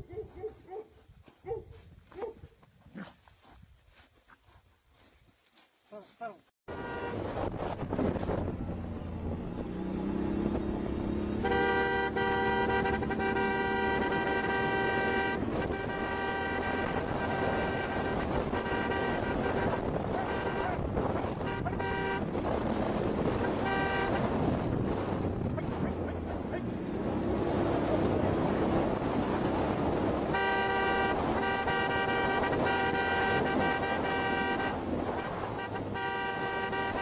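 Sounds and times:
vehicle horn blowing: 6.7 - 7.3, 11.3 - 22.5, 23.2 - 24.5, 30.0 - 37.0
wind noise on microphone: 6.7 - 12.4, 14.0 - 26.3, 27.8 - 37.0
engine rumble: 6.7 - 37.0.

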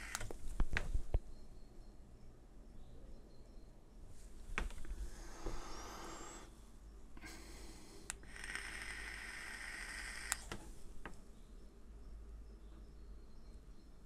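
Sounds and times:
small clicks: 0.0 - 1.2, 8.1 - 11.2
e-cigarette airy hiss: 5.1 - 6.5, 7.2 - 10.4.

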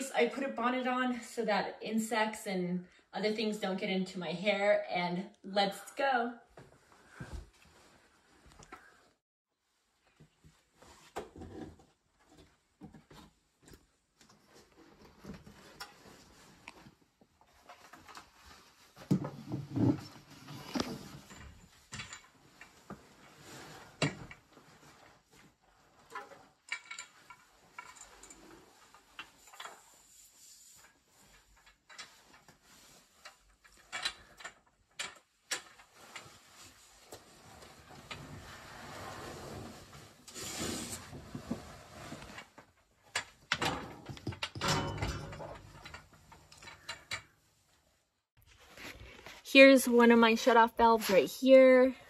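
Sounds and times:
clothing rustling: 6.5 - 43.4.

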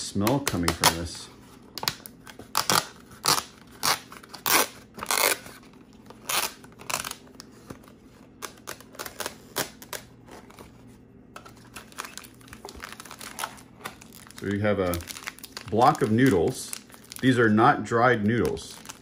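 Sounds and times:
plastic packaging crinkling: 0.2 - 19.0.

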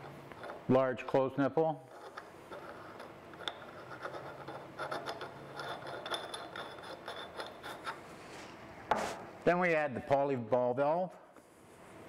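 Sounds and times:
pipe threads scraping: 0.0 - 8.2.

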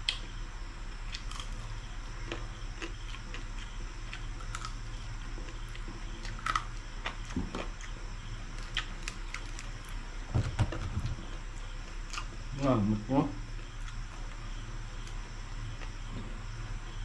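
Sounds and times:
steady low hum: 0.0 - 17.0
crunching crispy food: 1.0 - 10.0.

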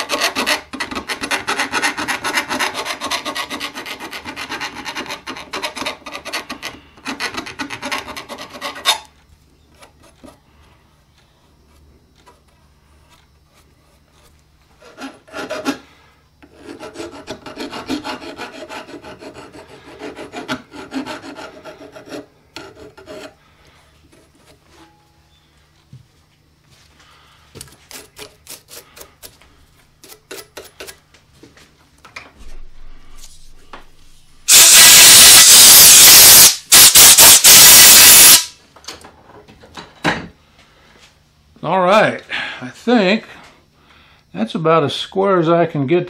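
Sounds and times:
file rasping on steel: 0.0 - 9.1, 13.5 - 23.4
short scrape: 32.4 - 38.5.

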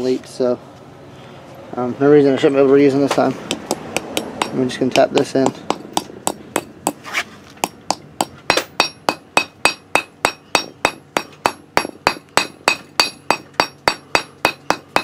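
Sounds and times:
hammer tapping metal: 3.5 - 7.0, 7.6 - 15.0.

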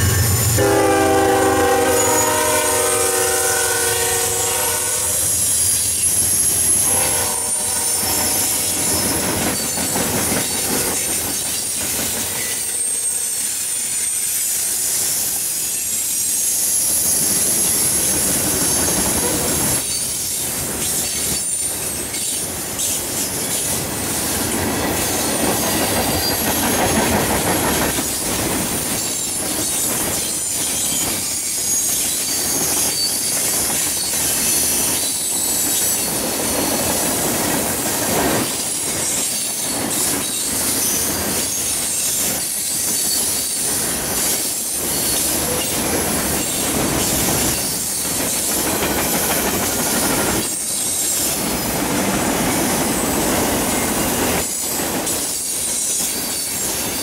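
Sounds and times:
faint high wheel squeal: 0.0 - 10.6, 11.3 - 23.7, 29.0 - 36.9, 38.6 - 48.6
freight train wheels rumbling on rail: 0.0 - 57.0.

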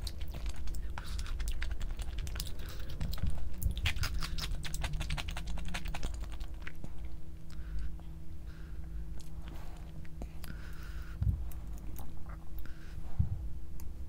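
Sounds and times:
chewing crunches: 0.0 - 8.0.

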